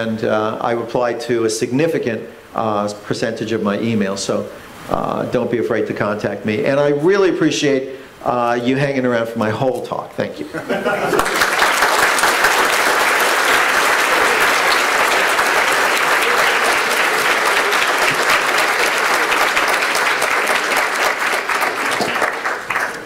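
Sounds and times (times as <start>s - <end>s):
audience applauding: 11.0s - 23.0s.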